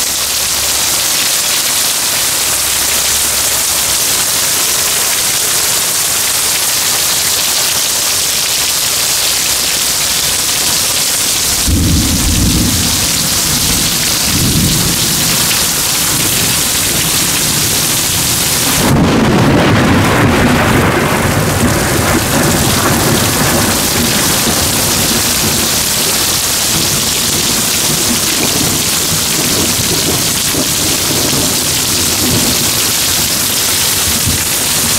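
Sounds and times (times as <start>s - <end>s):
heavy rain pouring: 0.0s - 34.9s
thunder rumbling: 10.5s - 34.9s.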